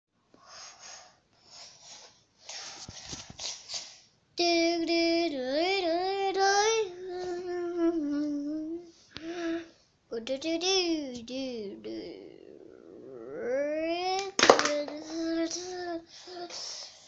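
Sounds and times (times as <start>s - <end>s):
child hissing breaths: 0.4s - 4.1s, 16.0s - 17.0s.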